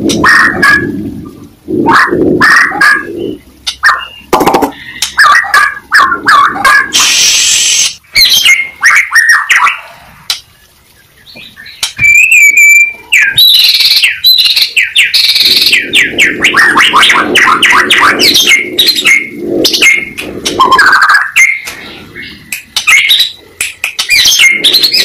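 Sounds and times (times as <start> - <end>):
songbird singing: 2.4 - 6.9, 10.4 - 25.0.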